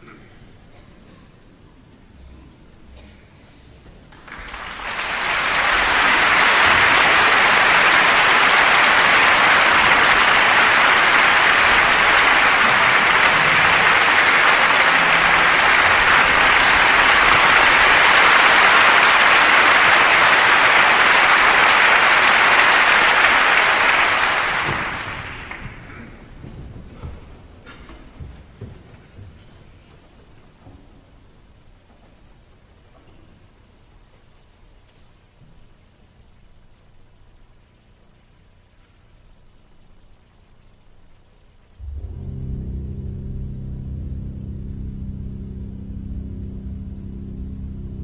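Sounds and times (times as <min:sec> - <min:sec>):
audience applauding: 0:04.1 - 0:26.5.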